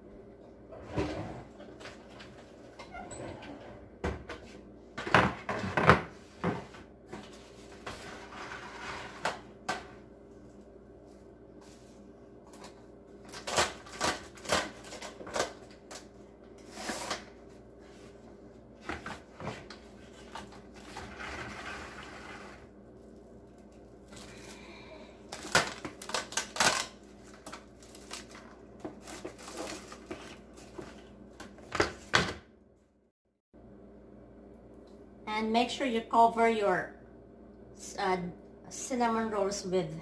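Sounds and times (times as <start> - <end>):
cling wrap crinkling: 25.3 - 30.8.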